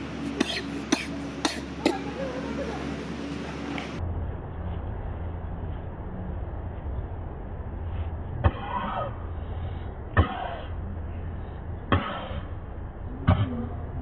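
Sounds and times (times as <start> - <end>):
steady low rumble: 0.0 - 14.0
monkey coughing: 0.2 - 3.0.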